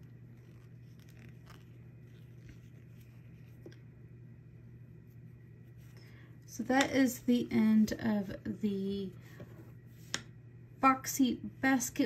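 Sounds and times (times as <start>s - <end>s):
yarn rustling: 0.0s - 3.8s
steady low hum: 0.0s - 12.0s.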